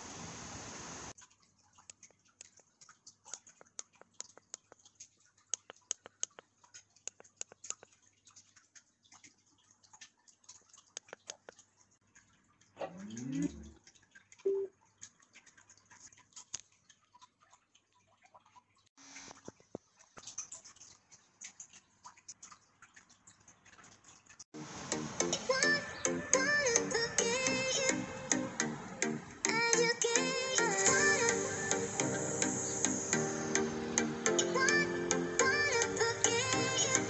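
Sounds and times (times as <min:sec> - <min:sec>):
short beep: 0:14.5 - 0:14.7.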